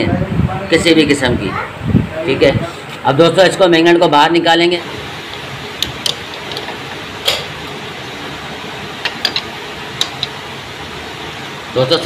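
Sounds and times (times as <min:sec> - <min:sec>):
steady background hiss: 0:00.0 - 0:12.0
metal tool clicks and taps: 0:09.0 - 0:10.4.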